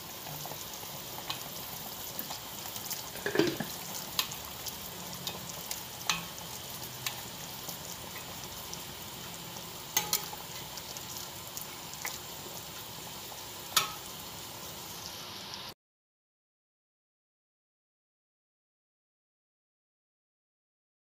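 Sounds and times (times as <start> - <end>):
liquid bubbling and sizzling in a wok: 0.0 - 15.8.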